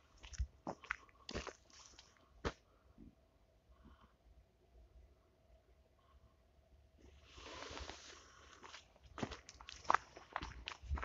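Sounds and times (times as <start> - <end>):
footsteps on gravel and leaves: 0.2 - 2.2, 7.4 - 11.0.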